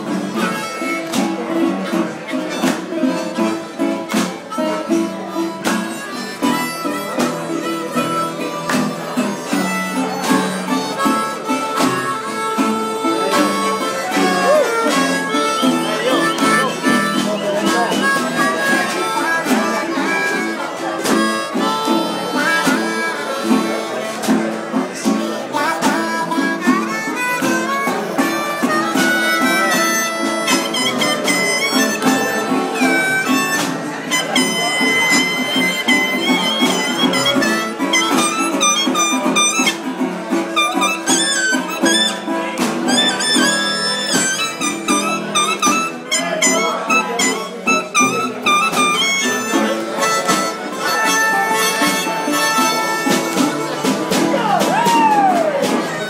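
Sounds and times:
harmonica playing: 0:00.0 - 0:56.0.

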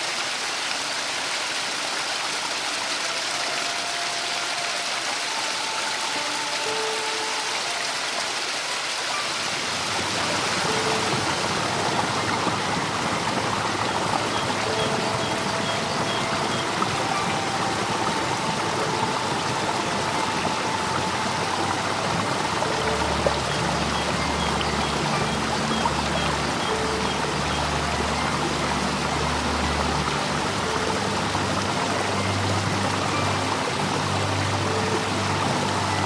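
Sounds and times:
stream rushing over stones: 0:00.0 - 0:36.0.

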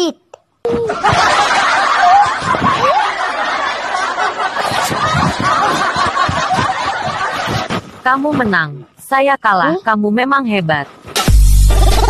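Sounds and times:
people laughing: 0:00.7 - 0:08.0.

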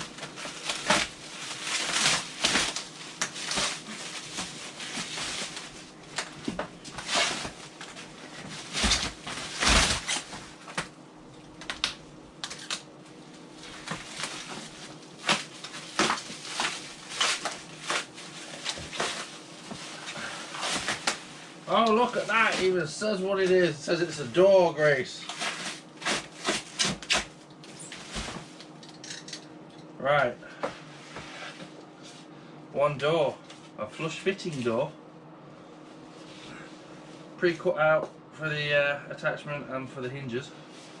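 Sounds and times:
cardboard rustling: 0:00.0 - 0:10.9, 0:13.6 - 0:22.8, 0:25.2 - 0:28.6
plastic wrap crinkling and tearing: 0:00.0 - 0:10.9, 0:11.6 - 0:12.9, 0:13.6 - 0:22.8, 0:25.2 - 0:28.8.

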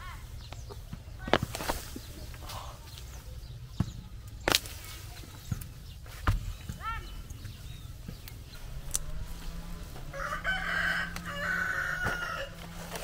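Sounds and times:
light knocks of roots handled: 0:00.5 - 0:09.2
rooster crowing: 0:09.1 - 0:12.9.

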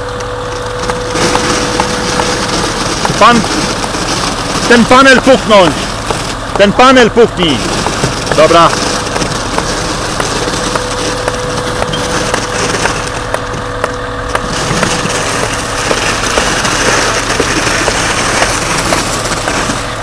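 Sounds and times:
concrete pump running: 0:00.0 - 0:20.0
faint steady whine: 0:00.0 - 0:20.0
sharp knocks and taps: 0:07.7 - 0:19.7.

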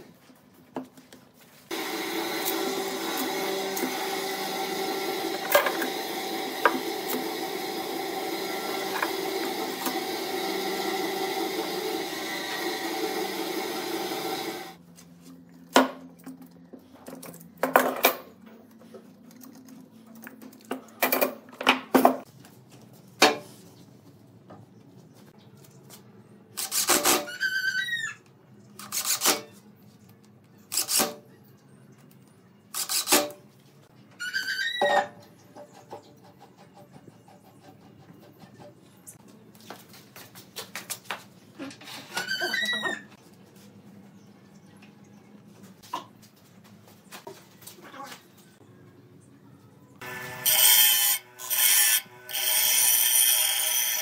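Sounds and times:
steady whirring: 0:01.7 - 0:14.8
short squeak: 0:41.9 - 0:43.1.

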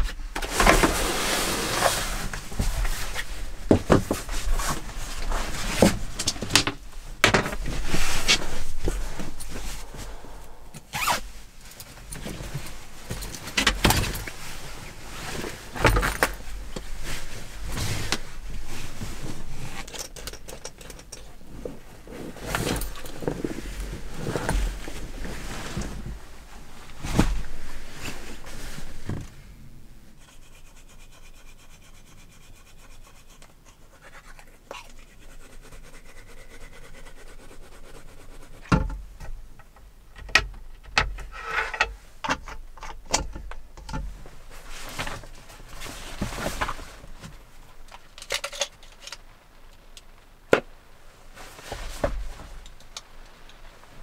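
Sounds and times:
sleeping bag rustling: 0:00.3 - 0:20.1, 0:21.2 - 0:30.0, 0:44.3 - 0:47.5.

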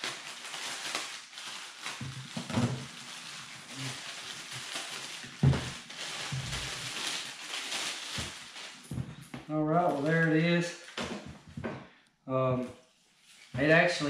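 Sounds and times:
plastic wrapping crinkling: 0:00.0 - 0:11.7
handling knocks and thumps: 0:05.4 - 0:05.8.

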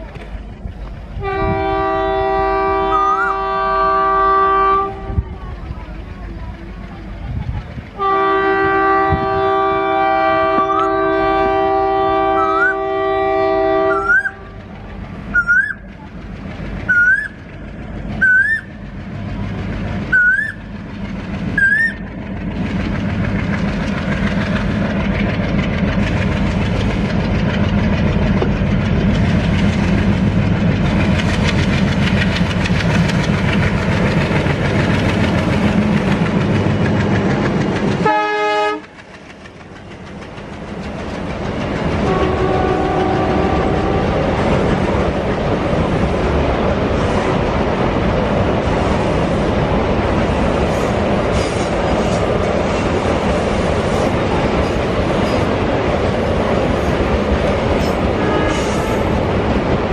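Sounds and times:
train rumbling past: 0:00.0 - 0:59.9
locomotive horn: 0:01.2 - 0:05.3, 0:08.0 - 0:14.7, 0:38.0 - 0:38.9, 0:42.0 - 0:44.4, 0:58.1 - 0:59.1
wagons clickety-clack: 0:14.0 - 0:45.9.

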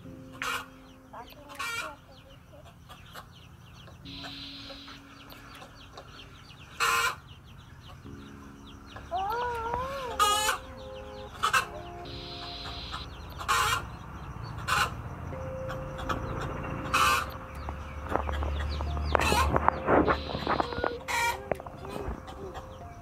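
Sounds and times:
hen clucking: 0:00.3 - 0:23.0
hen squawking: 0:04.0 - 0:05.1, 0:09.1 - 0:13.9, 0:19.2 - 0:22.8.

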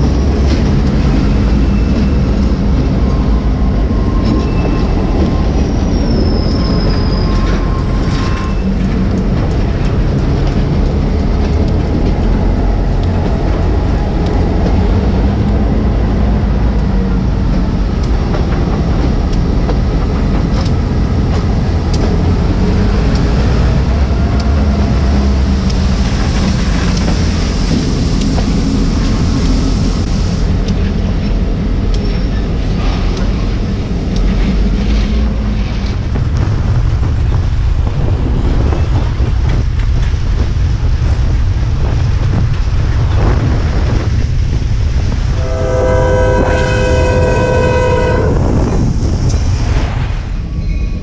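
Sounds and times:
freight cars clacking on rails: 0:00.0 - 0:51.0
locomotive engine hum: 0:00.0 - 0:51.0
locomotive air horn: 0:45.3 - 0:48.6.

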